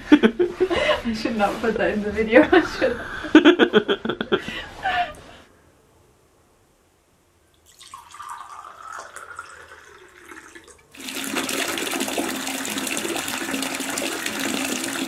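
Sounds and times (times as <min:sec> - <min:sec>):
water rushing into a bathtub: 0:07.6 - 0:15.0
wine pouring into a glass: 0:07.6 - 0:15.0.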